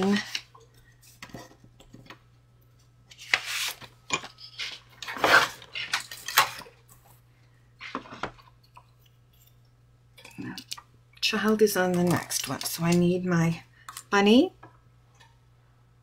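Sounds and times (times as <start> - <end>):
craft supplies clattering and rustling: 3.2 - 7.0.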